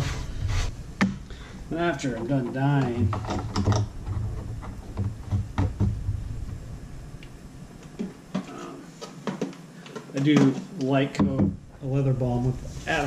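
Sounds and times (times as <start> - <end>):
low hum: 0.0 - 8.9.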